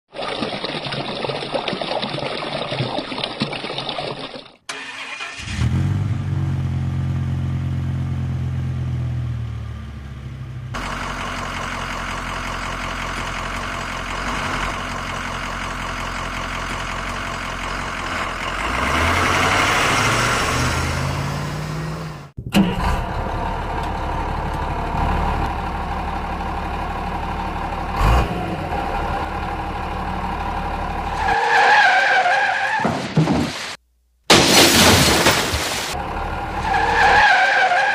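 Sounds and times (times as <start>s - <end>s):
running water trickling: 0.1s - 4.6s
vehicle engine running: 5.6s - 31.3s.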